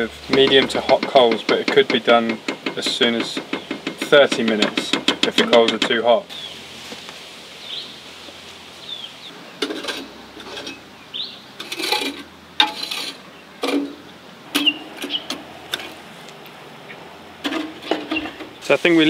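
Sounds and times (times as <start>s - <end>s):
utensils scraping and knocking cookware: 0.3s - 6.1s, 9.6s - 10.8s, 11.6s - 14.0s, 17.4s - 18.6s
bird chirps: 7.6s - 9.7s, 10.6s - 11.6s, 13.3s - 15.4s, 18.0s - 18.7s.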